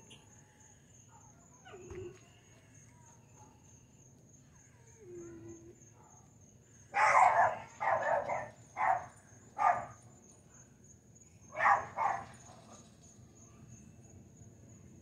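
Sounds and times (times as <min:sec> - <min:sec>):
crickets chirring: 0:00.0 - 0:15.0
dog barking: 0:07.0 - 0:10.0, 0:11.6 - 0:12.5.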